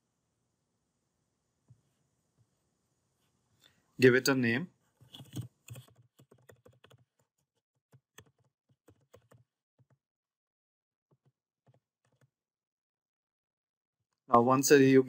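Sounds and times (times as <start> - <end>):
faint keyboard typing: 5.0 - 10.0, 11.1 - 12.4.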